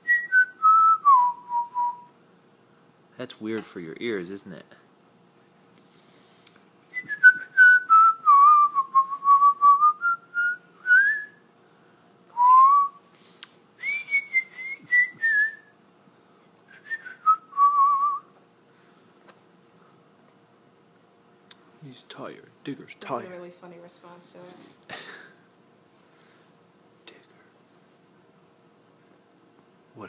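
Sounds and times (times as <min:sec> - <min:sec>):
person whistling a tune: 0:00.0 - 0:02.1, 0:06.9 - 0:11.4, 0:12.3 - 0:13.0, 0:13.8 - 0:15.7, 0:16.7 - 0:18.3.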